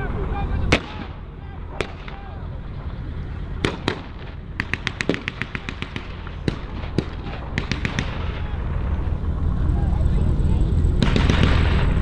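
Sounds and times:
low rumble: 0:00.0 - 0:12.0
distant gunfire: 0:00.7 - 0:01.2, 0:01.8 - 0:02.3, 0:03.6 - 0:08.5, 0:11.0 - 0:12.0.

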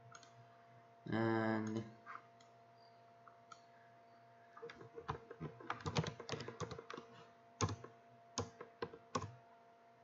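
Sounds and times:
computer keyboard typing: 0:04.7 - 0:09.4.

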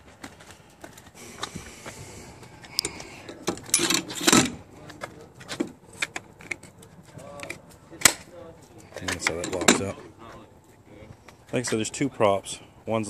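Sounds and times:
metal rattle and scrape: 0:01.2 - 0:08.3
metal ladder clicks and clanks: 0:02.8 - 0:08.2.

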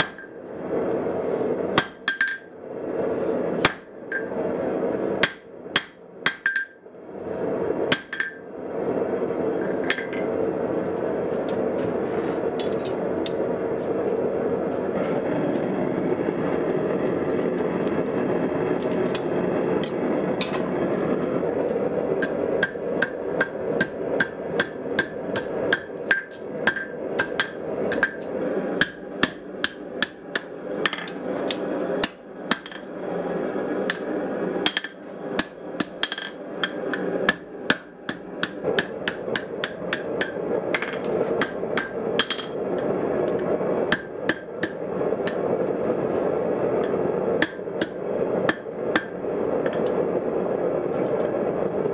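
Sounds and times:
forge burner rushing: 0:00.0 - 0:51.9
hammer striking steel on anvil: 0:01.8 - 0:02.5, 0:05.2 - 0:06.8, 0:22.2 - 0:32.9, 0:34.6 - 0:42.6.

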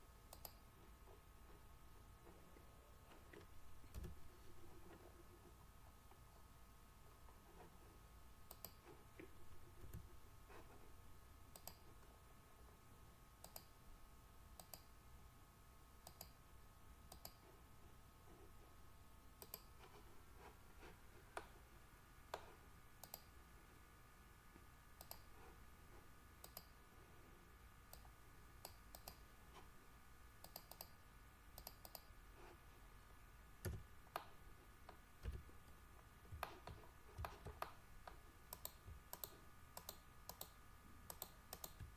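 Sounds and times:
computer mouse and keyboard clicks: 0:03.1 - 0:04.3, 0:08.5 - 0:10.1, 0:11.5 - 0:12.0, 0:13.4 - 0:13.7, 0:14.6 - 0:14.9, 0:16.0 - 0:16.4, 0:17.1 - 0:17.4, 0:19.4 - 0:20.0, 0:26.4 - 0:26.8, 0:27.9 - 0:29.2, 0:30.4 - 0:31.0, 0:31.6 - 0:32.1, 0:36.3 - 0:41.9.

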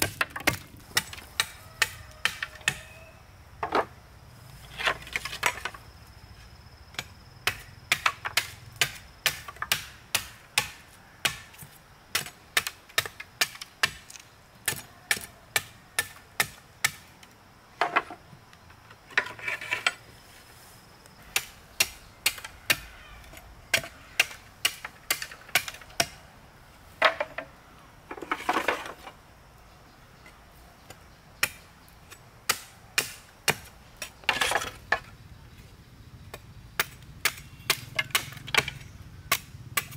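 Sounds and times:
machete chopping bamboo: 0:00.0 - 0:02.9, 0:07.4 - 0:17.1, 0:21.4 - 0:22.9, 0:23.7 - 0:26.2, 0:31.4 - 0:35.1, 0:36.3 - 0:39.9.

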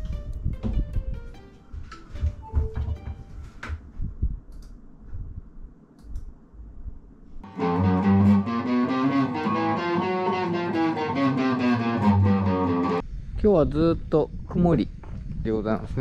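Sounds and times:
guitar music: 0:07.4 - 0:13.0.

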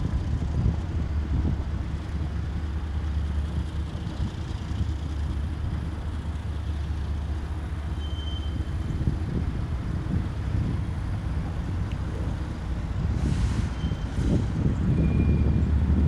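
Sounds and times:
diesel locomotive engine rumbling: 0:00.0 - 0:16.0.

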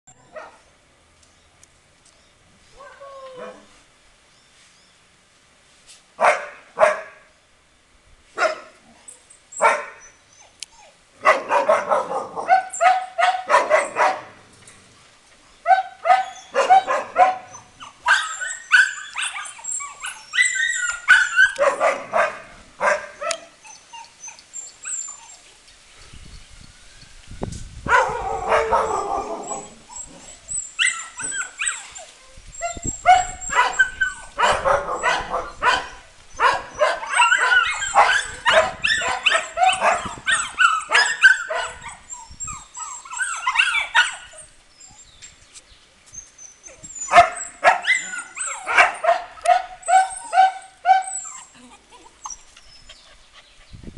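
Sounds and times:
dogs barking: 0:06.2 - 0:07.2, 0:09.6 - 0:10.0, 0:11.2 - 0:14.4, 0:15.7 - 0:19.4, 0:21.1 - 0:23.4, 0:27.9 - 0:29.7, 0:33.0 - 0:41.8, 0:47.1 - 0:51.1.

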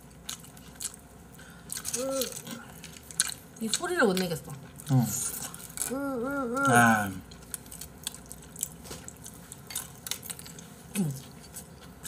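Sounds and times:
chewing: 0:00.0 - 0:12.0
person's wavering vocal note: 0:05.8 - 0:07.2.

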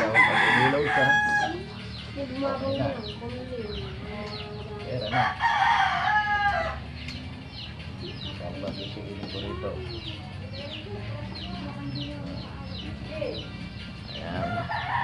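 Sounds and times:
rooster crowing: 0:00.0 - 0:01.6, 0:05.1 - 0:06.8, 0:14.4 - 0:15.0
small birds chirping: 0:00.0 - 0:15.0.

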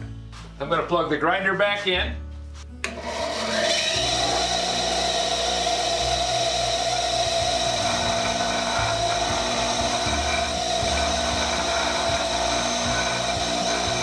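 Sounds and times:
bench grinder motor hum and whine: 0:02.9 - 0:14.0
grinding hiss: 0:03.3 - 0:14.0.

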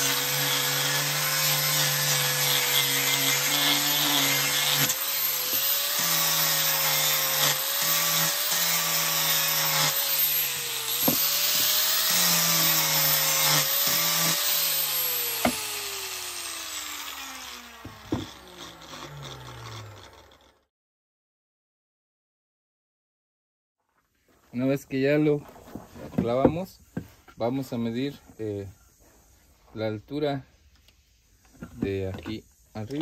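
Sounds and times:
angle grinder sanding wood: 0:00.0 - 0:20.6
knocks of board and tool: 0:11.0 - 0:11.8, 0:15.4 - 0:15.6, 0:17.8 - 0:18.4.

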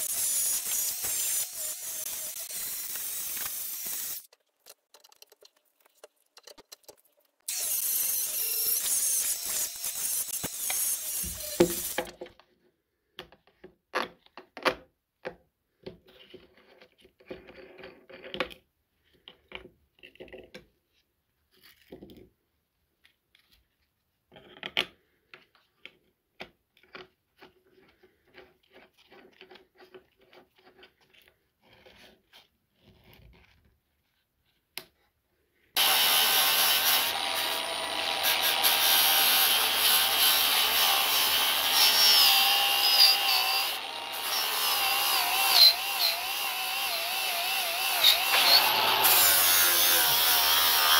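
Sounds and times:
angle grinder grinding steel: 0:00.0 - 0:04.3, 0:07.5 - 0:12.1, 0:35.8 - 0:50.9.

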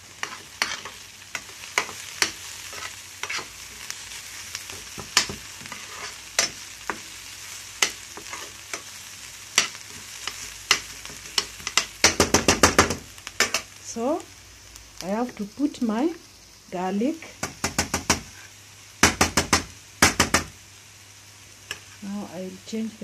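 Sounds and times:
onions sizzling in oil: 0:00.0 - 0:23.0
metal spoon scraping a pan: 0:00.1 - 0:04.0, 0:04.7 - 0:07.2, 0:07.8 - 0:08.9, 0:09.6 - 0:12.2, 0:13.4 - 0:13.7, 0:21.7 - 0:22.0.

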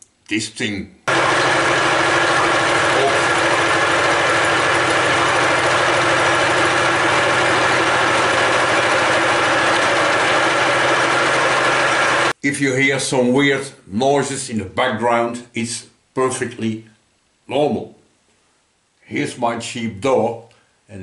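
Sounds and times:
machine humming and whirring: 0:01.1 - 0:12.4.

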